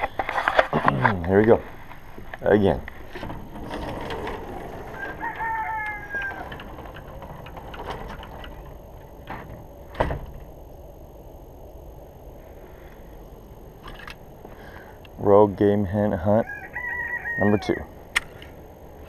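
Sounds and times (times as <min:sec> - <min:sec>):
rooster crowing: 0:04.7 - 0:07.2, 0:16.2 - 0:18.0.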